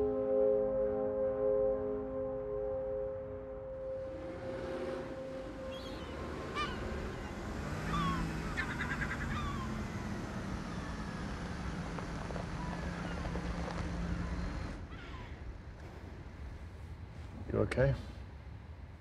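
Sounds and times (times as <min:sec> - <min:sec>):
low steady hum: 0:00.0 - 0:19.0
seagulls calling: 0:04.4 - 0:15.5.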